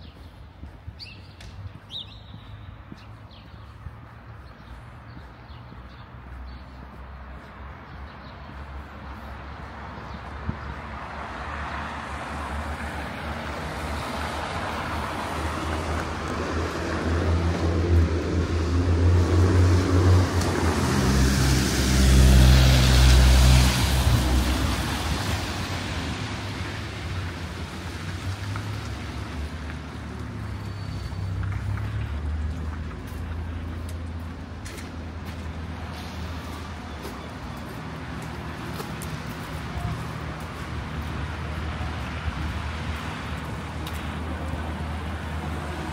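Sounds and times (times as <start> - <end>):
vehicle passing with low engine: 10.7 - 45.9.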